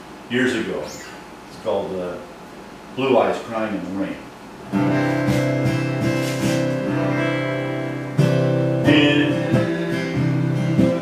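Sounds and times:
acoustic guitar strumming chords: 0:04.6 - 0:11.0.

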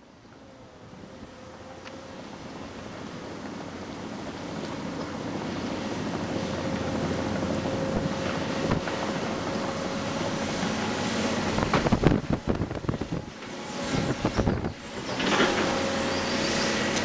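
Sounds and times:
excavator diesel engine running: 0:00.2 - 0:17.0
wind noise on microphone: 0:05.3 - 0:17.0.

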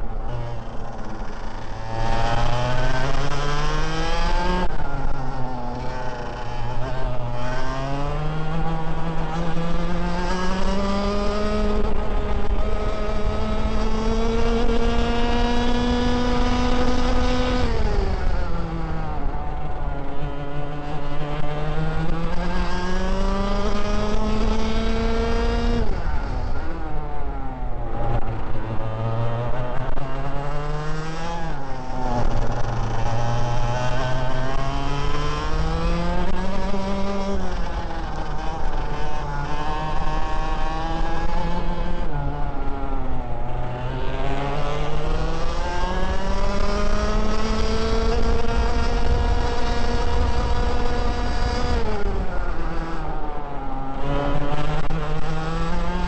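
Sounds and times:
kart engine revving: 0:00.0 - 0:56.0.

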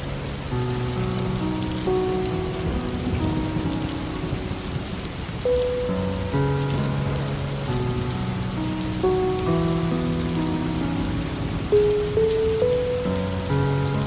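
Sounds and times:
slow held musical notes: 0:00.0 - 0:14.0
steady rain falling: 0:00.0 - 0:14.0.

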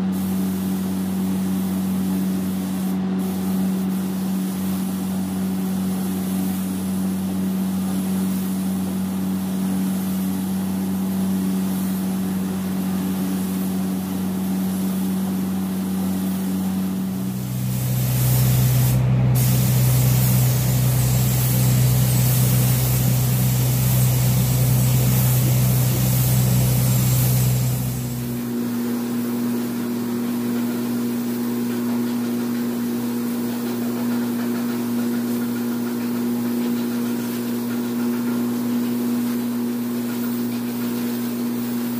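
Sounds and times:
low machine hum: 0:00.0 - 0:30.8
paint spray gun hissing: 0:00.0 - 0:41.9.

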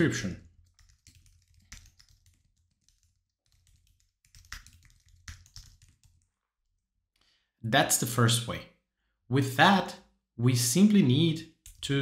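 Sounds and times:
typing on computer keyboard: 0:00.6 - 0:06.3, 0:11.6 - 0:11.8.

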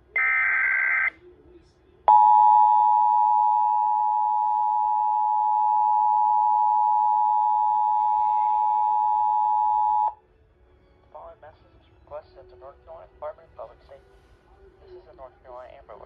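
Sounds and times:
two-tone emergency alert alarm: 0:00.2 - 0:01.1, 0:02.1 - 0:10.2.

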